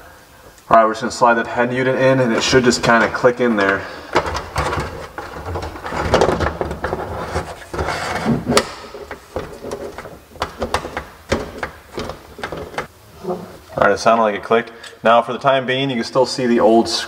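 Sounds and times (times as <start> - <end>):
metal scraping and rubbing: 2.2 - 13.8
sharp clicks and knocks: 3.6 - 12.9.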